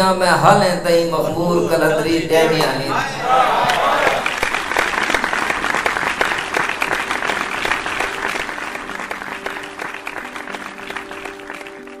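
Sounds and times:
audience applause: 3.2s - 12.0s
outro music: 6.0s - 12.0s.

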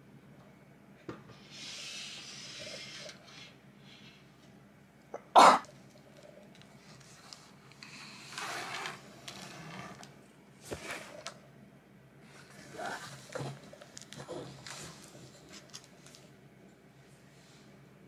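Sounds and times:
person sneezing: 5.2s - 5.7s.

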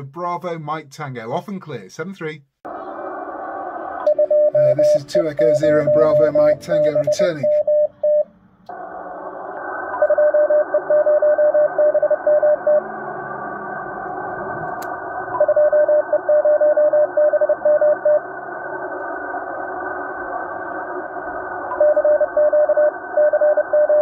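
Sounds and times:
radio static hiss: 2.7s - 7.6s, 8.7s - 23.7s
morse code tone: 4.1s - 8.3s, 10.0s - 12.9s, 21.7s - 24.0s.

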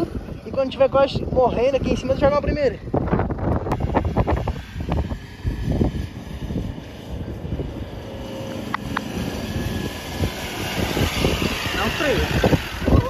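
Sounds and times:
off-road vehicle engine running: 0.0s - 13.0s
wind rumbling on microphone: 0.0s - 13.0s.

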